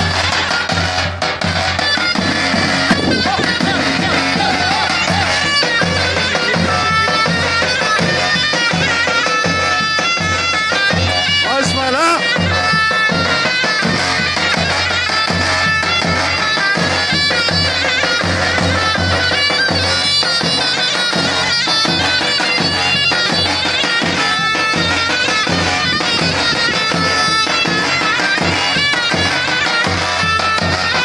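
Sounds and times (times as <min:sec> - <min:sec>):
shrill wavering zurna melody: 0:00.0 - 0:31.0
bass drum beat: 0:02.2 - 0:08.2.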